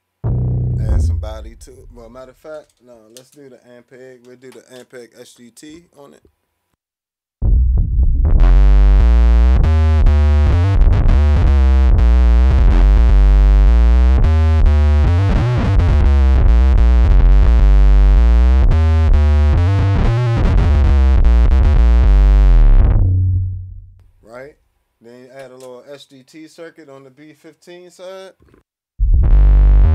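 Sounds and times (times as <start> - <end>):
fuzzy electric bass line: 0.0 - 2.3, 7.4 - 24.1, 29.0 - 29.9.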